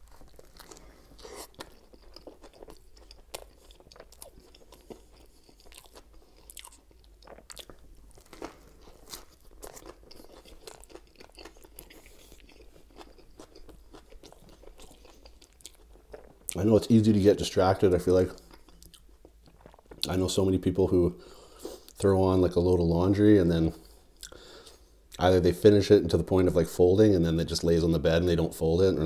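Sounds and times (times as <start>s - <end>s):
person chewing: 0.0s - 16.6s, 18.3s - 20.1s, 23.8s - 25.2s
bread crunching: 0.0s - 17.0s.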